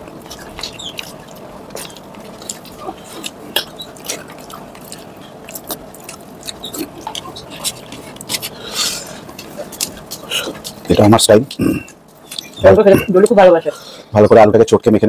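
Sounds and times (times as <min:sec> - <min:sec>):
hand mixing food: 0:00.0 - 0:14.3
chewing mouth clicks and smacks: 0:00.1 - 0:08.6, 0:09.2 - 0:10.9, 0:11.5 - 0:12.6.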